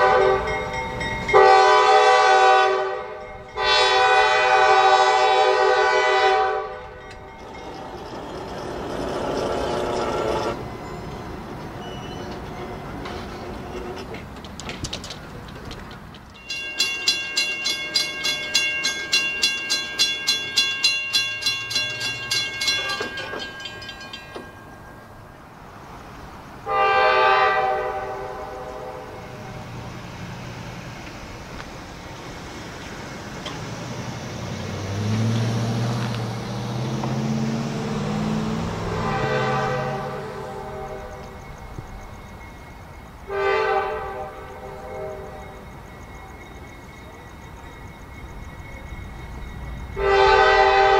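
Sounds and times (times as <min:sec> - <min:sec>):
locomotive horn blast: 0:00.0 - 0:00.7, 0:01.3 - 0:07.1, 0:26.6 - 0:29.6, 0:38.0 - 0:41.4, 0:43.3 - 0:45.6, 0:50.0 - 0:50.9
crossing bell ringing: 0:00.0 - 0:13.5, 0:16.3 - 0:25.7, 0:36.0 - 0:50.9
diesel engines rumbling: 0:00.0 - 0:50.9.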